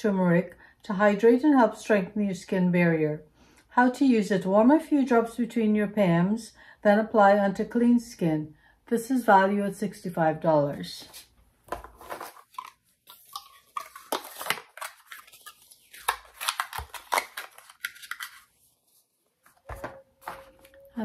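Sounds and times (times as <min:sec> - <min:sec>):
cardboard and plastic packaging rustling: 0:11.0 - 0:21.0.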